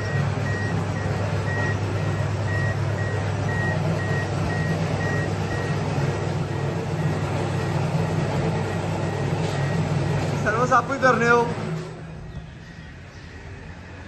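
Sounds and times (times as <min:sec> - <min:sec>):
car warning chime beeping: 0:00.0 - 0:10.7.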